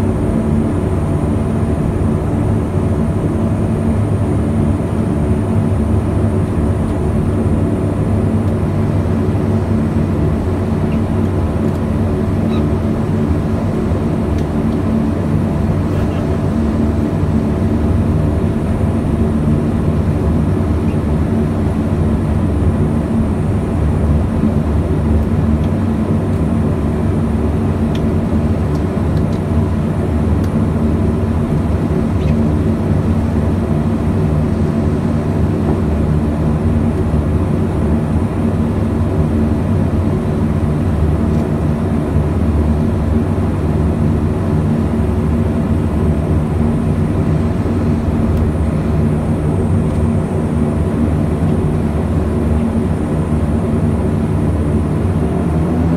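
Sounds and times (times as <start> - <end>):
turboprop engines droning in cabin: 0.0 - 55.9.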